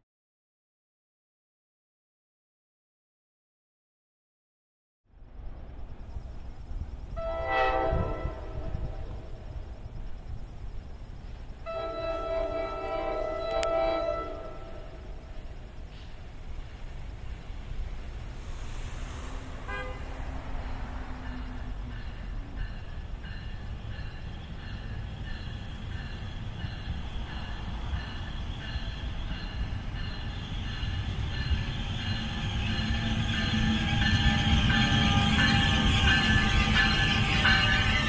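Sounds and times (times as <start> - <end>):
train rumble: 5.1 - 38.0.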